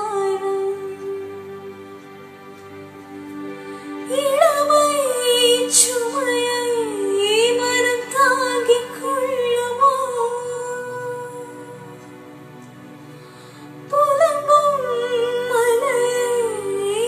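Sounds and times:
woman singing: 0:00.0 - 0:01.7, 0:04.0 - 0:12.1, 0:13.9 - 0:17.0.

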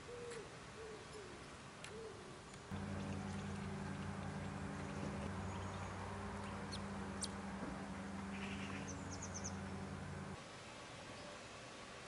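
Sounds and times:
low hum: 0:02.7 - 0:10.4
bird chirps: 0:02.8 - 0:07.4, 0:08.3 - 0:09.8.

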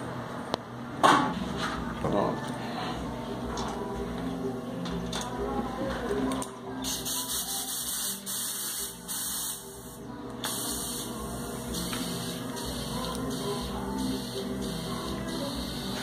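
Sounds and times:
compressed air hissing: 0:06.9 - 0:09.8.

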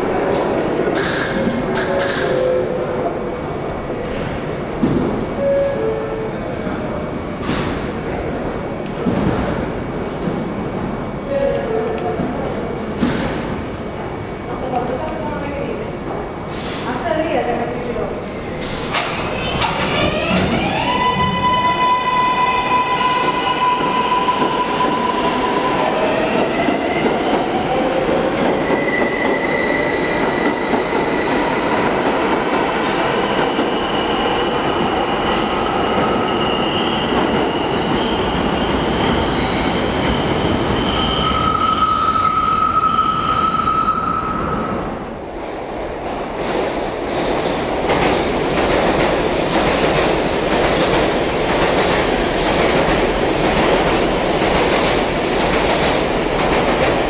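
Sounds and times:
train running noise: 0:00.0 - 0:41.8, 0:43.7 - 0:57.0
subway traction motors whining: 0:00.0 - 0:57.0
train wheel squeal: 0:28.5 - 0:31.6, 0:35.8 - 0:44.7, 0:54.0 - 0:55.6.

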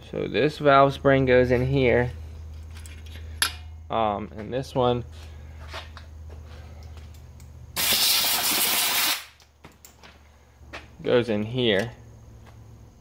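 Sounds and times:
low steady hum: 0:00.0 - 0:07.8
air hiss: 0:07.8 - 0:09.4.

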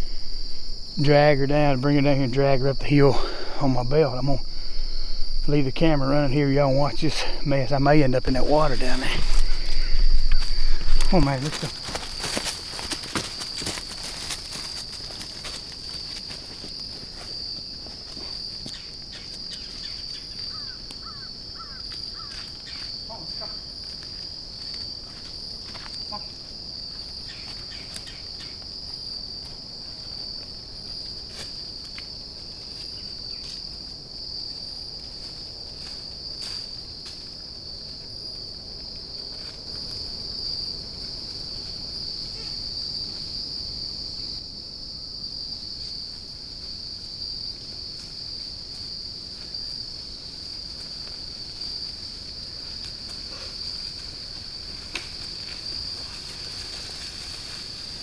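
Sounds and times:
insect chorus drone: 0:00.0 - 0:58.0.

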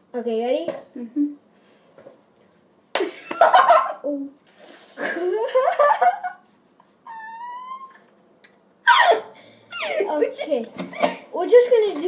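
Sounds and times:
boys shrieking and laughing: 0:07.0 - 0:08.1, 0:08.8 - 0:10.2.

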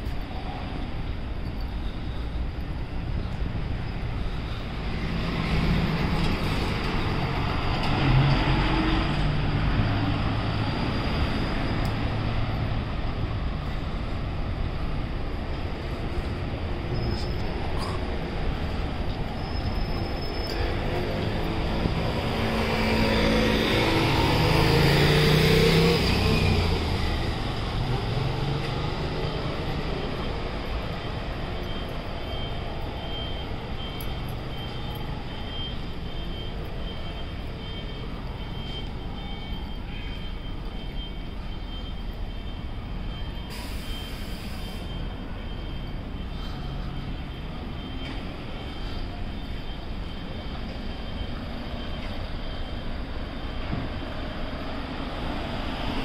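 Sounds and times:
city traffic: 0:00.0 - 0:56.0
brief high hiss: 0:43.5 - 0:44.9.

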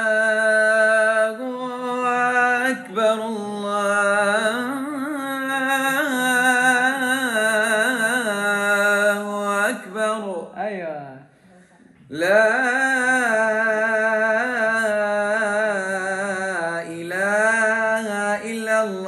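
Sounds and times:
man singing call to prayer: 0:00.0 - 0:10.6, 0:12.1 - 0:19.0.

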